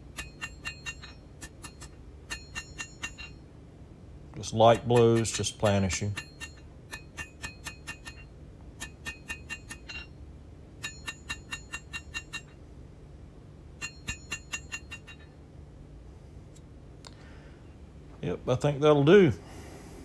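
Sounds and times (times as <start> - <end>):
hammer ringing on anvil: 0.0 - 3.5, 4.6 - 10.2, 10.8 - 12.6, 13.8 - 15.4.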